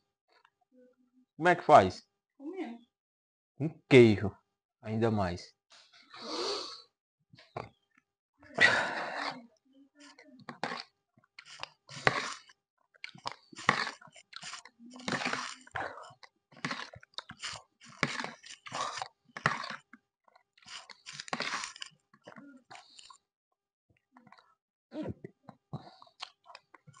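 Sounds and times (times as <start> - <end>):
close chewing and eating: 7.4 - 23.3, 24.0 - 27.0
metal spoon scraping gelatin: 8.6 - 9.4, 10.0 - 23.2.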